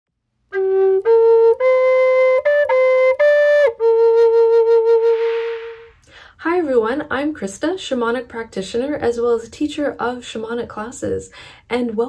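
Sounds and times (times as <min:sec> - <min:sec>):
wooden flute melody: 0:00.5 - 0:06.0.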